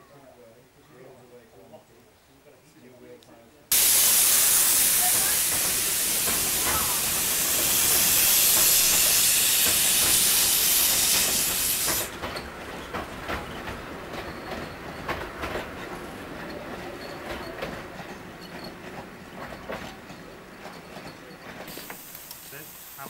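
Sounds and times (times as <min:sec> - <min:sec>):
steam locomotive hissing: 0:03.7 - 0:23.0
train running on rails: 0:03.7 - 0:23.0
light rail clicks: 0:20.7 - 0:22.6.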